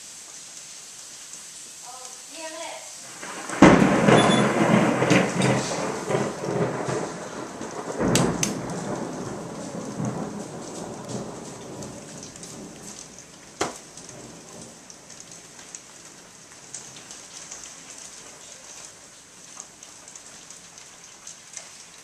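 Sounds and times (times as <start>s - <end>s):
steady rain falling: 0.0s - 22.0s
thunder rumbling: 3.1s - 17.2s.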